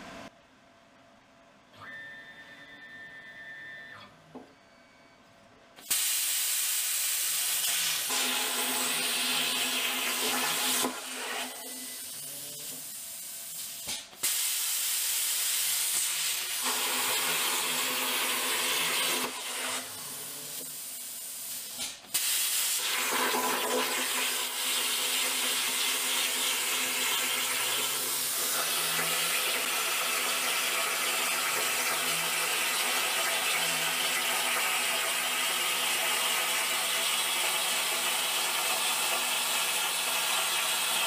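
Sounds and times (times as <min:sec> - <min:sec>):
plasma torch hissing: 0:05.8 - 0:23.1.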